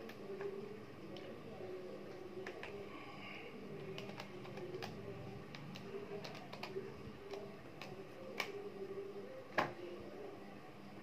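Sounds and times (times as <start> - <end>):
calculator buttons clicking: 3.8 - 8.6.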